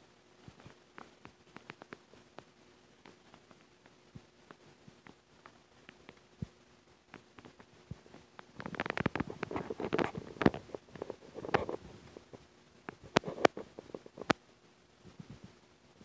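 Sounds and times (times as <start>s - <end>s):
sharp clicks: 0.5s - 6.3s.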